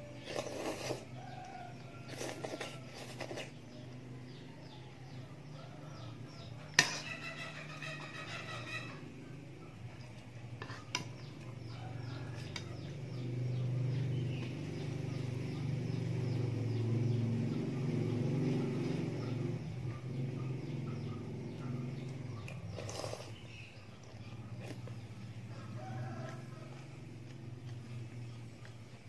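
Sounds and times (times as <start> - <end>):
noodles slurped: 0.2 - 1.2, 22.6 - 23.6.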